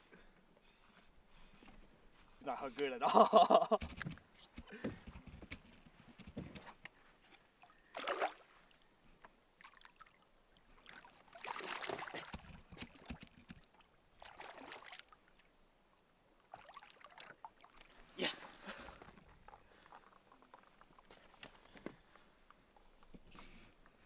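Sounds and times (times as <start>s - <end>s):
fish splashing in water: 7.9s - 8.4s, 10.8s - 13.2s, 14.2s - 15.2s.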